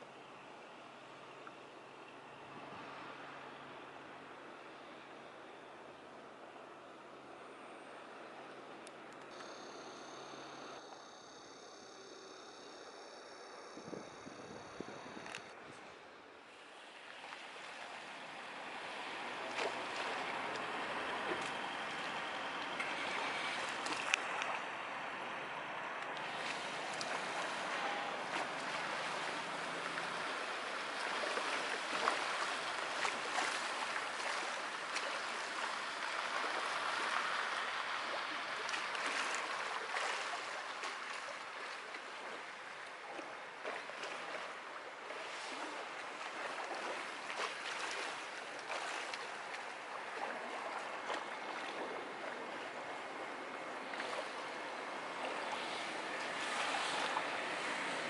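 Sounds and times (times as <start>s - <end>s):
small waves lapping: 0.0s - 58.0s.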